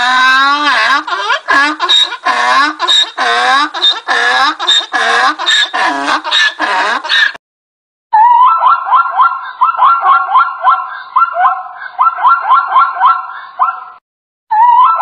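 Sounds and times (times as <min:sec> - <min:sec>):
donkey braying: 0:00.0 - 0:07.4
zebra barking yelps: 0:01.0 - 0:07.4, 0:08.2 - 0:14.0.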